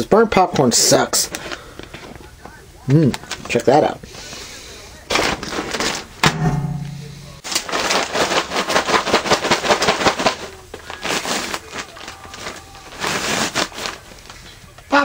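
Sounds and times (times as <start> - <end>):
paper bag crinkling: 5.1 - 6.2, 7.4 - 14.8.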